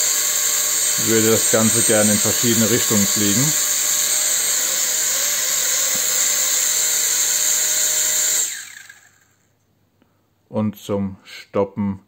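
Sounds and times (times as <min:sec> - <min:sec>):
toy drone motors whining: 0:00.0 - 0:09.4.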